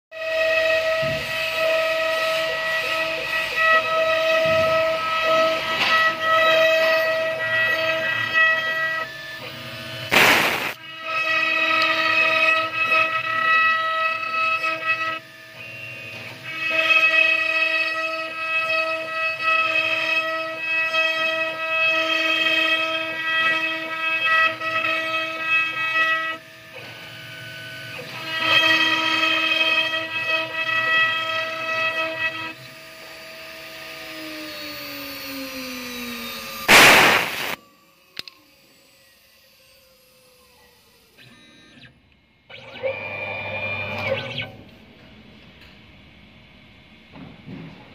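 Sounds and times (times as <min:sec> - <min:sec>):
router spindle whine: 0:00.2 - 0:44.7
loud rushing burst: 0:10.1 - 0:10.8, 0:36.7 - 0:37.6
single click: 0:10.1 - 0:10.8.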